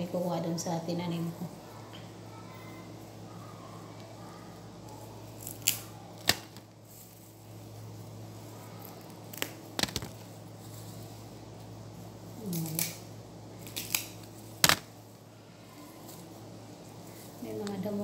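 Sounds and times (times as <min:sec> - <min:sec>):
steady low hum: 0:00.0 - 0:18.0
plant stems snapping: 0:05.4 - 0:06.7, 0:08.9 - 0:10.2, 0:12.4 - 0:13.0, 0:13.6 - 0:14.9.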